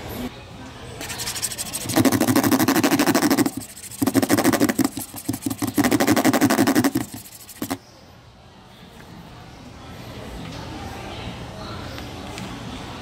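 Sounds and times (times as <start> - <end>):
metal tool rasping on plastic shell: 1.0 - 7.8.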